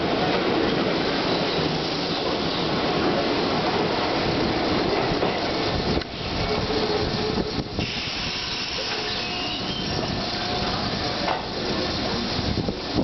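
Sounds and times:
train wheels rumbling on rails: 0:00.0 - 0:13.0
high wheel squeal: 0:06.2 - 0:10.8.

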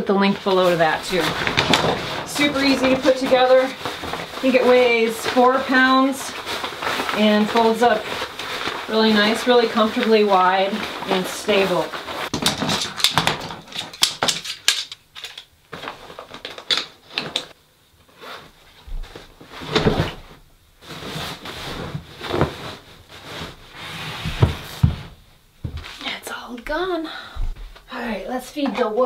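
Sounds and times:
nylon fabric rustling: 0:00.0 - 0:13.3, 0:18.1 - 0:26.2.

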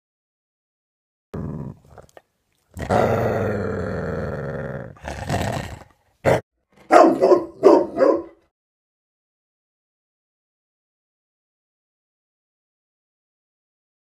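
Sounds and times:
dog growling: 0:01.4 - 0:06.4
dog barking sharply: 0:06.8 - 0:08.4.

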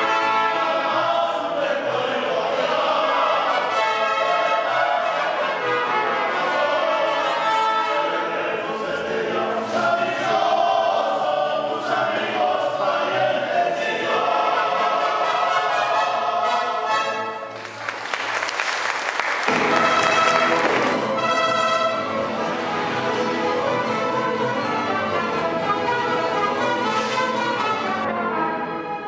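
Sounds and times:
trumpets and violins playing: 0:00.0 - 0:01.3, 0:02.6 - 0:08.6, 0:14.1 - 0:17.6, 0:19.5 - 0:29.0
voices singing together: 0:00.0 - 0:17.4
mariachi music: 0:00.0 - 0:29.0
applause: 0:17.5 - 0:21.2.

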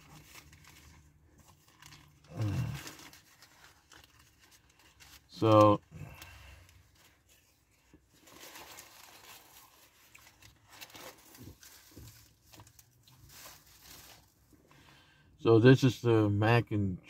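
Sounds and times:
food wrapper rustling: 0:00.0 - 0:14.6.

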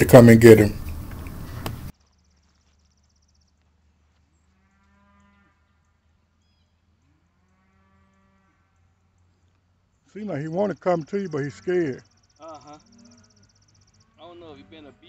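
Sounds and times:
faint farm animal calls: 0:04.0 - 0:15.0.

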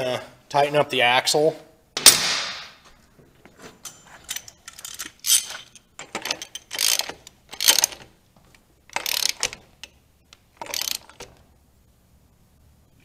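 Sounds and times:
socket ratchet clicking: 0:04.7 - 0:08.1, 0:08.9 - 0:10.0, 0:10.6 - 0:11.3.

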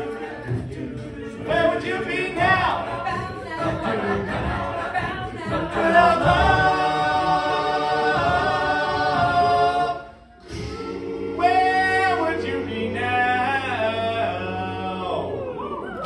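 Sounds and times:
lead voice singing: 0:00.0 - 0:16.0
male a cappella group singing: 0:00.0 - 0:16.0.

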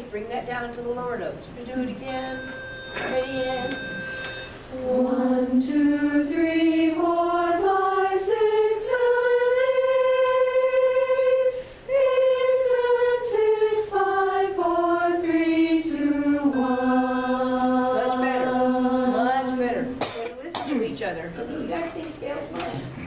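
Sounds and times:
chorus singing a scale: 0:02.0 - 0:20.0.

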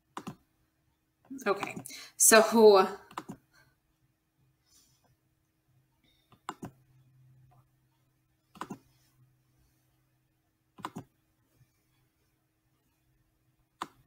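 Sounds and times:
computer mouse clicks: 0:00.1 - 0:00.5, 0:03.1 - 0:03.5, 0:06.3 - 0:06.8, 0:08.5 - 0:09.0, 0:10.8 - 0:11.2, 0:13.8 - 0:14.0.

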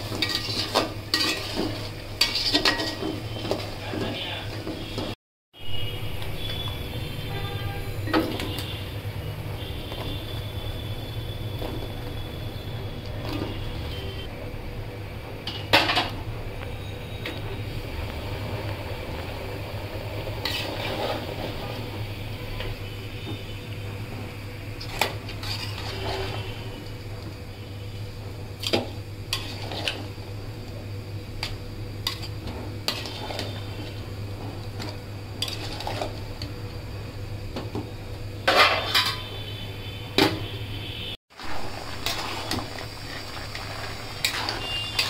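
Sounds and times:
metal spatula scraping a pot: 0:00.0 - 0:03.7, 0:20.4 - 0:21.8, 0:24.8 - 0:26.7, 0:28.6 - 0:30.1, 0:31.4 - 0:34.0, 0:34.8 - 0:36.2, 0:38.5 - 0:39.4, 0:41.9 - 0:45.0.

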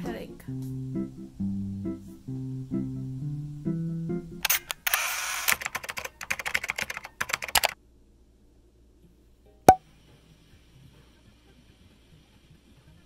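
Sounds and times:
rapid crisp clicks: 0:05.6 - 0:07.8.

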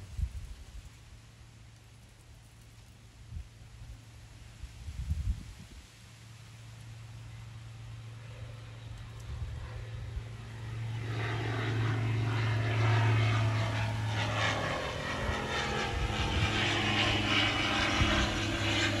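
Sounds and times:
light aircraft engine droning: 0:00.0 - 0:19.0
wind buffeting microphone: 0:04.7 - 0:05.8, 0:13.1 - 0:19.0.

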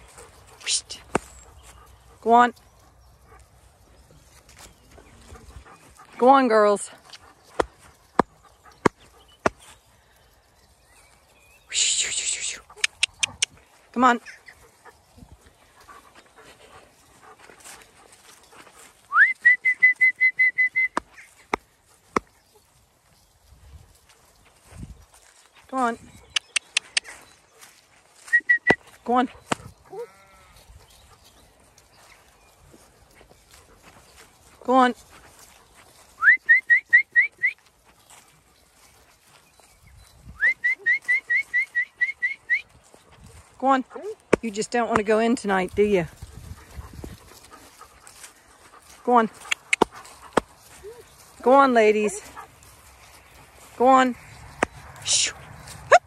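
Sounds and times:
sharp clicks: 0:12.8 - 0:13.6
person whistling: 0:19.1 - 0:21.0, 0:36.2 - 0:37.6, 0:40.4 - 0:42.6.

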